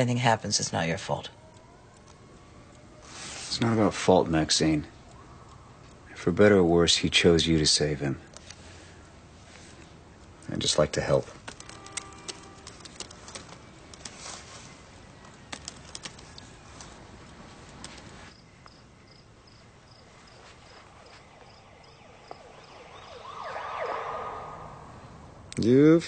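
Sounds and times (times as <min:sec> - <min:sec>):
siren: 0:00.8 - 0:06.0, 0:11.7 - 0:15.5, 0:20.4 - 0:25.5.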